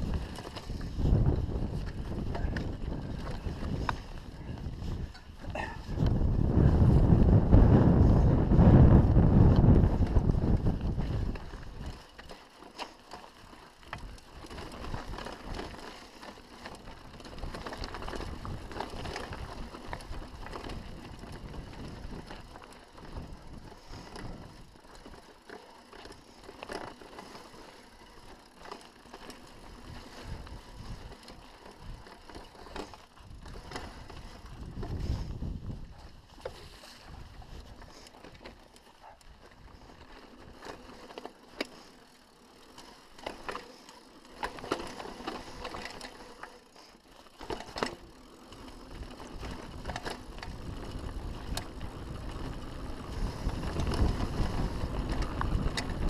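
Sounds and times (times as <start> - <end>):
wind buffeting microphone: 0.0 - 12.0, 16.8 - 24.8, 29.6 - 38.4, 48.5 - 56.0
bike knocking and rattling: 0.0 - 56.0
bike tyres rolling over stones: 0.0 - 56.0.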